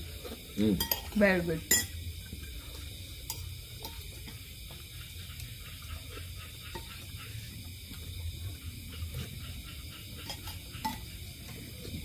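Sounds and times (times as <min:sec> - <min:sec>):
cutlery clicking on ceramic bowls: 0:00.8 - 0:02.0, 0:10.2 - 0:11.1.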